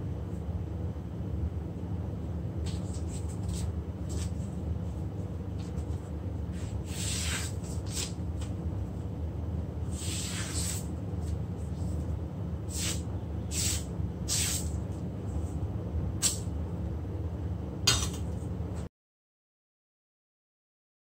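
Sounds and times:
steady low hum: 0.0s - 18.9s
cleaver slicing newspaper: 6.5s - 8.5s, 9.9s - 10.9s.

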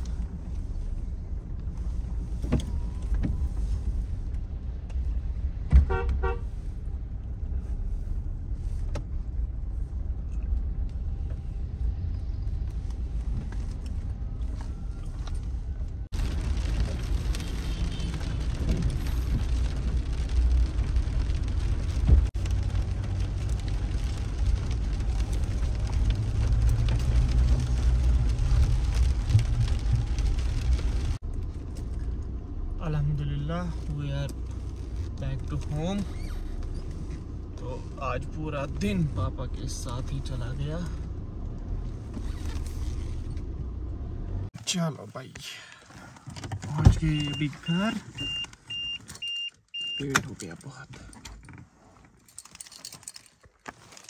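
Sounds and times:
engine and road rumble: 0.0s - 54.0s
car horn toot: 5.8s - 6.5s.

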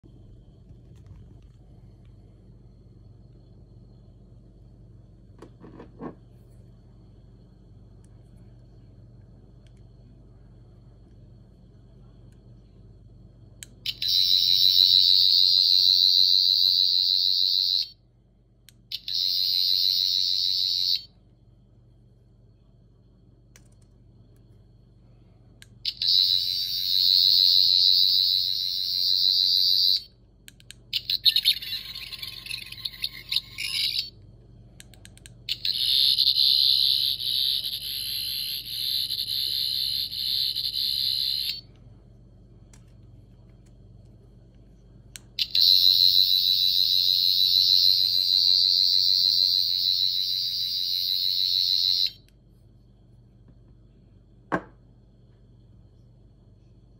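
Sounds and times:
high-pitched pulsing electronic whine: 13.9s - 18.0s, 18.9s - 21.2s, 25.9s - 30.2s, 31.0s - 34.2s, 35.5s - 41.7s, 45.4s - 52.3s
object knocking on wooden table: 54.5s - 54.8s.

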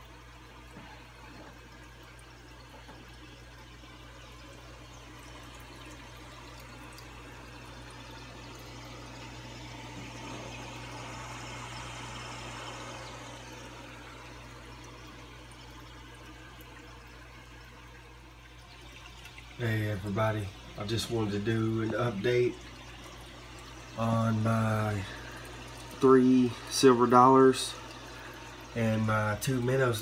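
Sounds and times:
aquarium air stone bubbling: 0.0s - 30.0s
low hum: 0.0s - 30.0s.

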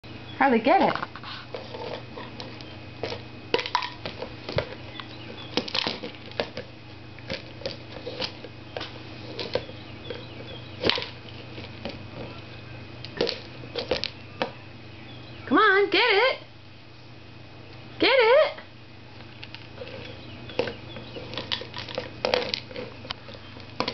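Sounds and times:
faint steady hum: 0.0s - 23.9s
cat pawing and rummaging: 19.4s - 23.9s.

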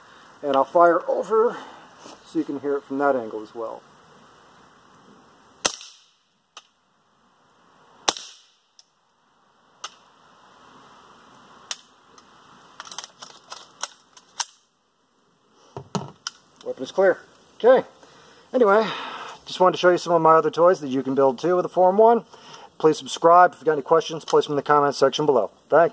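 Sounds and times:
suppressed gunshots: 5.6s - 6.2s.

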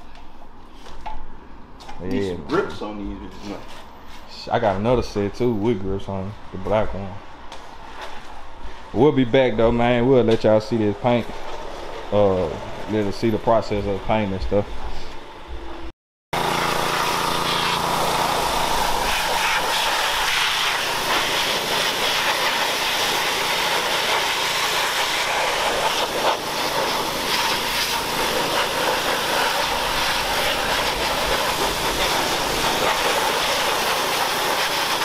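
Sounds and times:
pressure washer spraying water: 16.4s - 35.0s.

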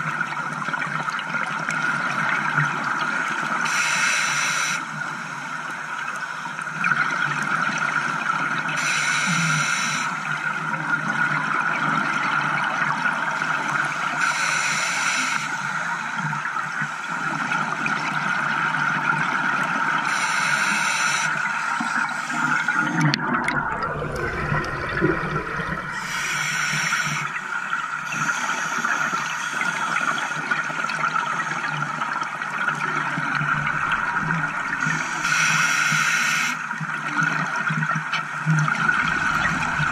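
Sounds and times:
regulator breathing hiss: 3.7s - 4.8s, 8.8s - 10.2s, 14.2s - 15.9s, 20.1s - 22.8s, 25.9s - 27.4s, 28.0s - 30.4s, 34.9s - 36.6s
bubbles: 21.8s - 26.1s, 29.7s - 35.0s, 36.9s - 39.9s
deep rumble of bubbles: 21.8s - 26.2s, 31.8s - 35.0s, 36.9s - 39.9s.

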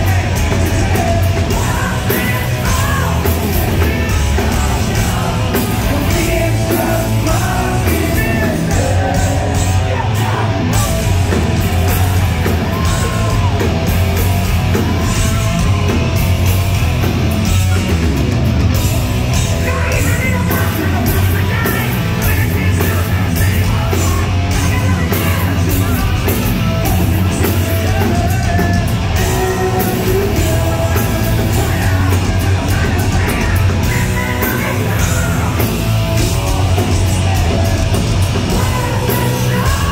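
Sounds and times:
man singing and yelling: 0.0s - 16.2s, 19.2s - 39.9s
heavy metal band playing: 0.0s - 39.9s.

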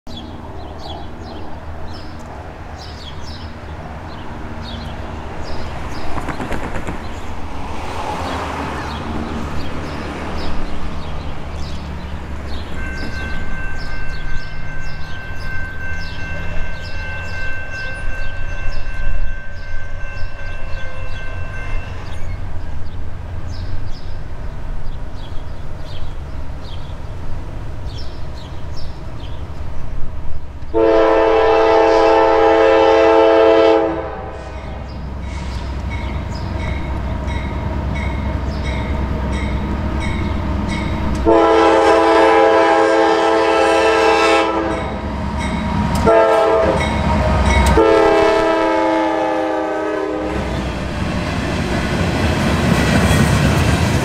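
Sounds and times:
diesel train rumble: 0.1s - 54.0s
locomotive air horn chord: 30.7s - 35.7s, 41.2s - 45.0s, 46.0s - 50.4s.

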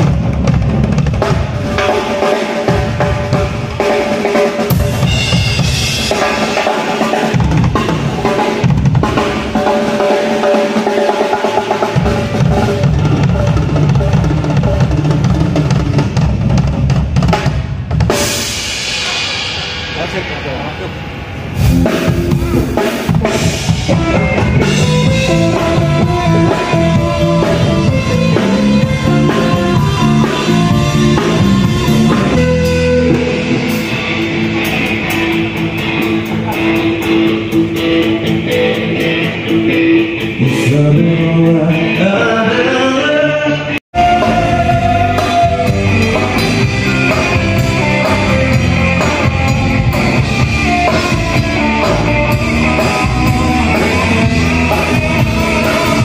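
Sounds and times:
bass guitar: 0.0s - 10.5s, 11.8s - 19.3s, 19.9s - 56.0s
drum kit: 0.0s - 43.1s, 43.9s - 56.0s
electric guitars: 0.0s - 56.0s
keyboard: 20.0s - 56.0s
person singing: 40.2s - 56.0s.

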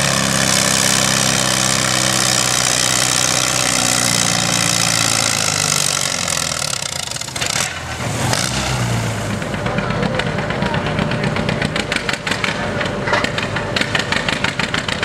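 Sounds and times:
tractor engine running under load: 0.0s - 15.0s.

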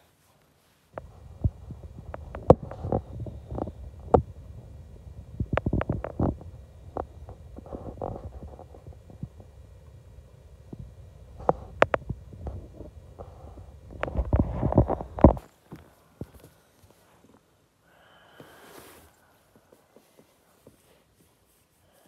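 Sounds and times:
sharp clicks and knocks: 1.0s - 10.0s, 10.6s - 15.4s
cat purring: 1.0s - 17.3s.

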